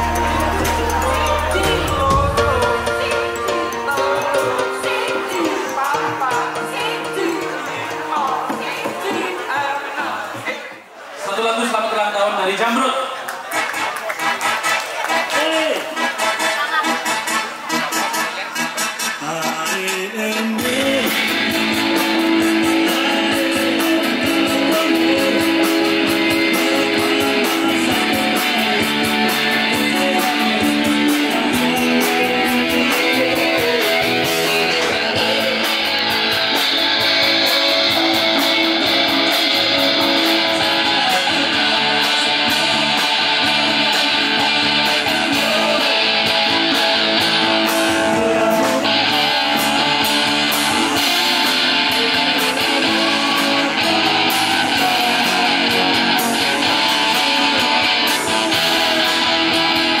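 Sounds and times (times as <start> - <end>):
bass guitar: 0.0 - 8.6, 20.4 - 60.0
strummed electric guitars: 0.0 - 9.2, 18.8 - 60.0
drum kit: 0.0 - 10.4, 19.6 - 60.0
keyboard: 0.0 - 10.4, 13.5 - 60.0.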